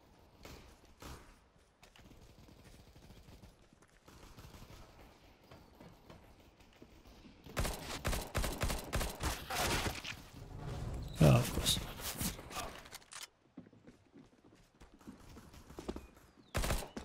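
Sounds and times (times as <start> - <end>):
video game automatic gunfire: 7.6 - 9.4, 16.6 - 17.0.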